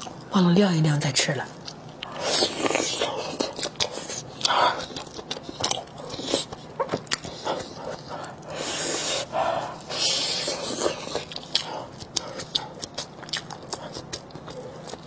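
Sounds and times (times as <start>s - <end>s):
wet chewing and biting: 1.6s - 15.0s
breathy hiss: 7.4s - 12.4s.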